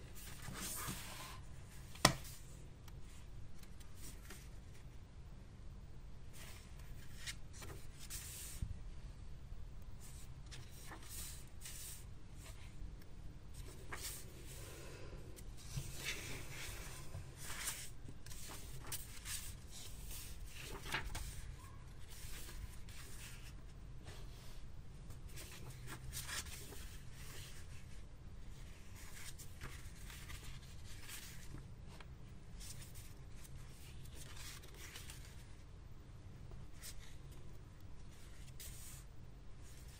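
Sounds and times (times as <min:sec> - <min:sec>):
low background hum: 0:00.0 - 0:39.9
paper pages being turned: 0:00.1 - 0:02.5, 0:03.6 - 0:04.6, 0:06.4 - 0:08.6, 0:10.0 - 0:12.7, 0:13.6 - 0:14.6, 0:15.6 - 0:24.3, 0:25.1 - 0:27.9, 0:28.5 - 0:35.6, 0:38.0 - 0:39.9.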